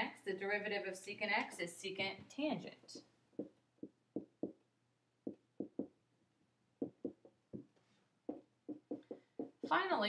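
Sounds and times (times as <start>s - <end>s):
marker tapping on whiteboard: 3.4s - 6.0s, 6.8s - 9.9s.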